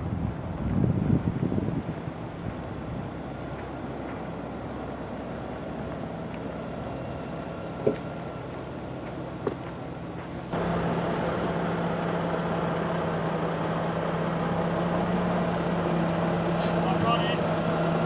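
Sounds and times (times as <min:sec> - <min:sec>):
engine running: 0:00.0 - 0:18.0
diesel truck engine idling: 0:01.3 - 0:18.0.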